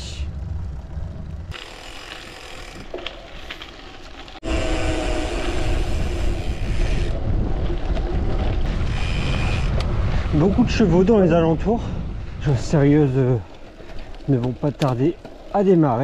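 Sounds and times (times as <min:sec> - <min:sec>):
bike tyres rolling on gravel: 0:00.3 - 0:16.0
wind on microphone: 0:04.4 - 0:13.0.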